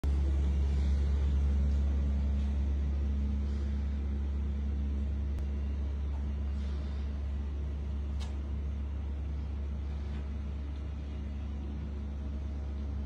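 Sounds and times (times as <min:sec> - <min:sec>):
low droning hum: 0:00.0 - 0:13.0.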